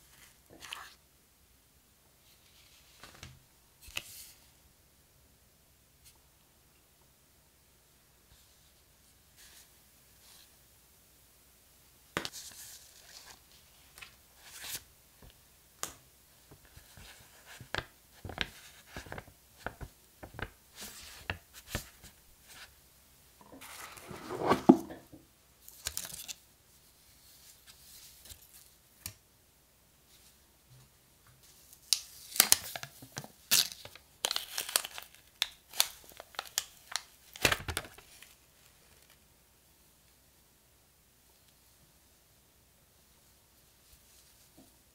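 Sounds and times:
paper and cardboard rustling: 0:23.5 - 0:25.0
plastic wrap crinkling and tearing: 0:31.8 - 0:39.2.

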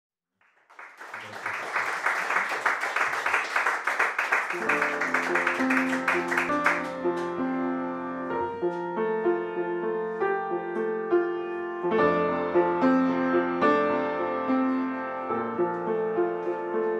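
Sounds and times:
audience applause: 0:00.4 - 0:07.3
solo piano slow melody: 0:04.5 - 0:16.9.

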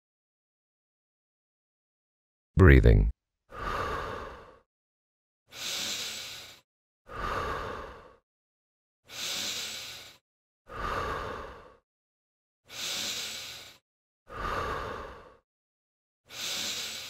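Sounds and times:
mouth breathing in and out: 0:16.3 - 0:17.0.

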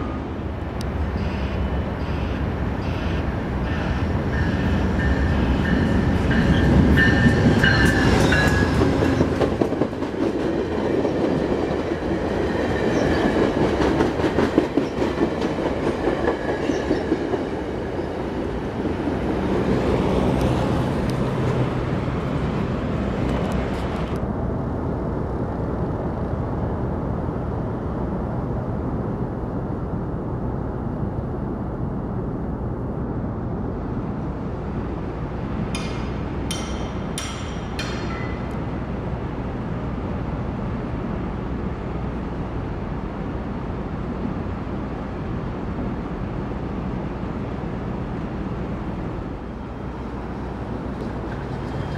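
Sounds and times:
heavy train rumble: 0:00.0 - 0:51.9
train wheels clattering over rail joints: 0:35.7 - 0:38.6.

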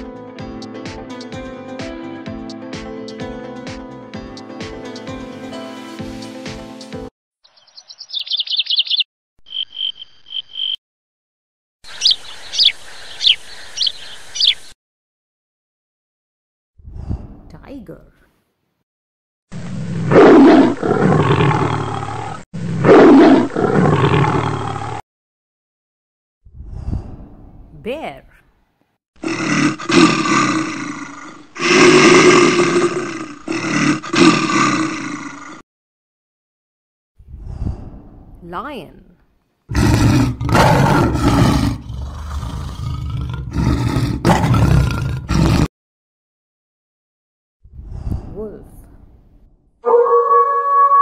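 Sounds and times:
tiger roaring: 0:19.6 - 0:25.0, 0:29.2 - 0:35.6, 0:39.7 - 0:45.7.

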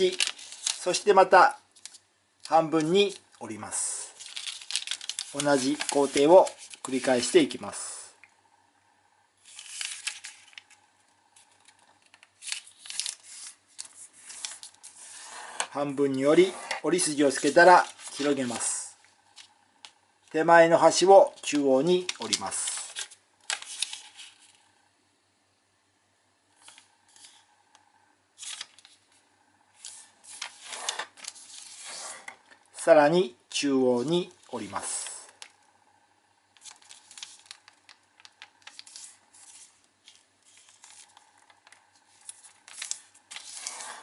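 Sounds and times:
light ticks of paper creasing: 0:00.0 - 0:01.0, 0:04.1 - 0:07.6, 0:09.4 - 0:20.4, 0:26.6 - 0:29.2, 0:29.8 - 0:31.9, 0:36.5 - 0:44.0
paper rustling on a table: 0:00.0 - 0:01.0, 0:04.1 - 0:07.4, 0:09.4 - 0:18.7, 0:22.0 - 0:24.6, 0:28.4 - 0:29.2, 0:29.8 - 0:32.4, 0:36.6 - 0:44.0
fingers scraping paper crease: 0:42.7 - 0:44.0.

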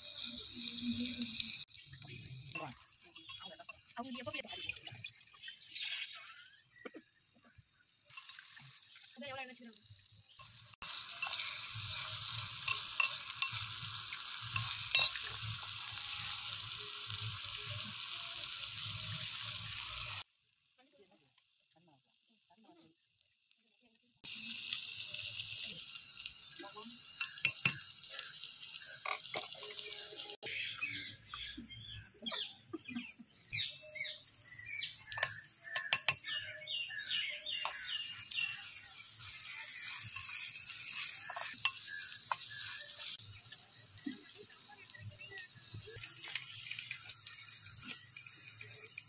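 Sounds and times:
vegetables sizzling: 0:00.0 - 0:49.0
metal spoon scraping clay pot: 0:11.0 - 0:16.4.

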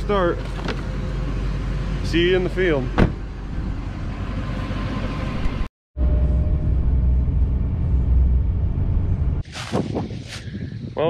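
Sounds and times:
vehicle engine and road rumble: 0:00.0 - 0:11.0
wind buffeting microphone: 0:09.0 - 0:11.0.

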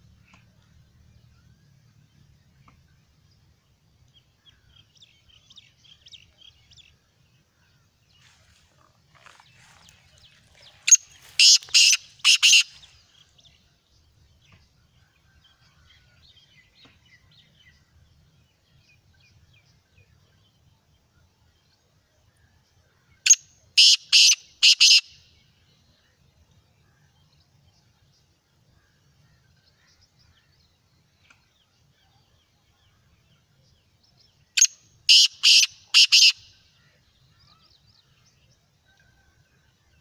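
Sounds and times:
small birds chirping: 0:00.0 - 0:40.0
bird calling sharp notes: 0:10.8 - 0:12.9, 0:23.8 - 0:25.2, 0:34.6 - 0:36.6.

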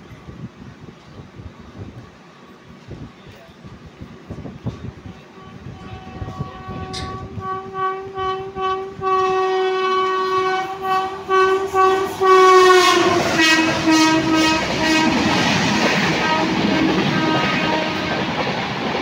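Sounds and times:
train coaches rushing and clattering: 0:00.0 - 0:19.0
train horn: 0:05.0 - 0:18.6.

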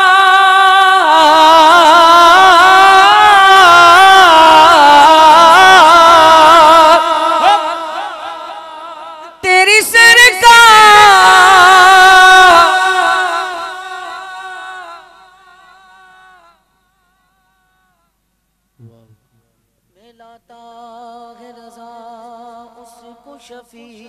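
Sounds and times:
man singing through a microphone: 0:00.0 - 0:16.6, 0:19.9 - 0:24.0.

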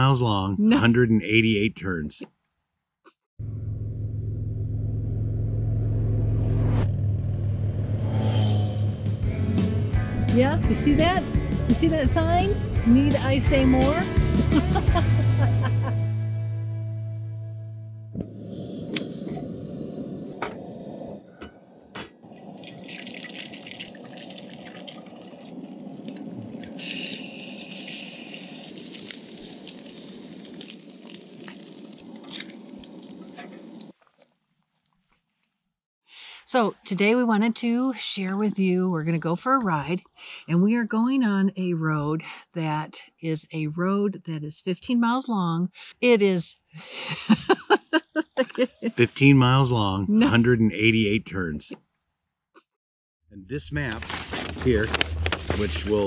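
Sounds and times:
gas burner rushing: 0:18.2 - 0:22.8
eggs sizzling in a skillet: 0:22.8 - 0:34.0
motorcycle engines rumbling: 0:53.6 - 0:56.0.

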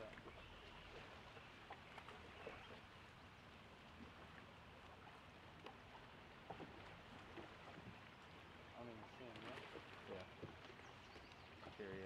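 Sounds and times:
water lapping against boat hull: 0:04.0 - 0:12.0.

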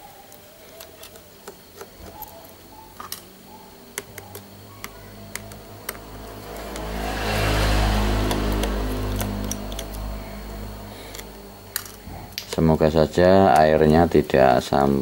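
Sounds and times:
low drone: 0:04.5 - 0:13.3.

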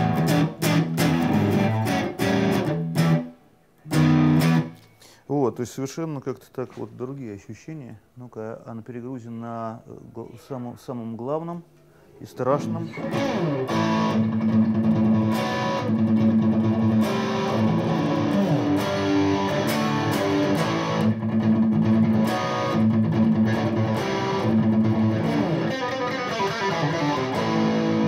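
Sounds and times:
overdriven electric guitar: 0:00.0 - 0:05.0, 0:12.6 - 0:28.0.

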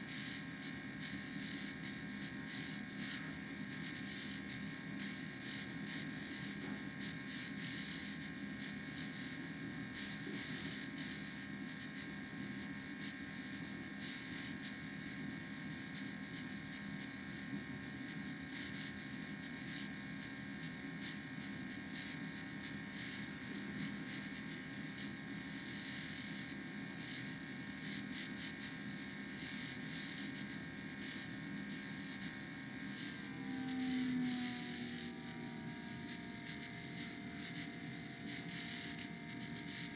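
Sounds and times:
steady mechanical whir: 0:22.7 - 0:39.9.

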